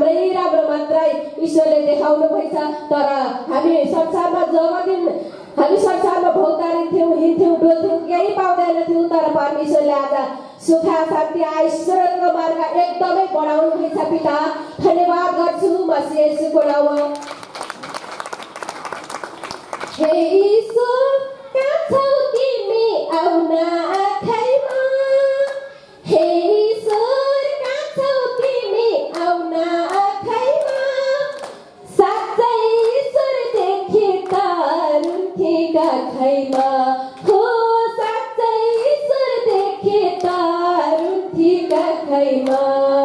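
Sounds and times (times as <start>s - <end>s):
people clapping in time: 16.6s - 20.9s, 21.6s - 25.7s, 26.8s - 42.9s
woman singing into microphone: 20.0s - 43.0s.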